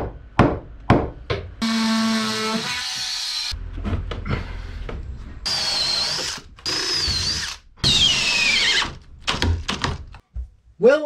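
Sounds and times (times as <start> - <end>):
cordless drill drilling wood: 1.6 - 3.6, 5.5 - 9.0.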